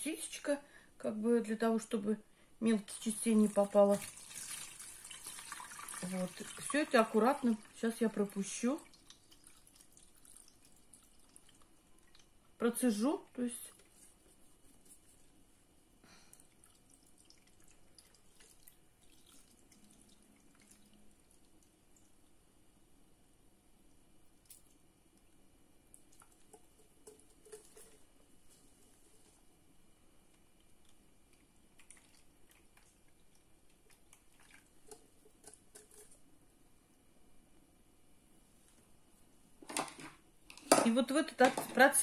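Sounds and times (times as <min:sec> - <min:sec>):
syrup trickling through sieve: 0:02.9 - 0:12.4, 0:25.9 - 0:29.2, 0:31.4 - 0:36.3
small drips and ticks: 0:02.9 - 0:13.0, 0:13.6 - 0:15.3, 0:16.1 - 0:22.6, 0:23.8 - 0:28.4, 0:30.2 - 0:37.1.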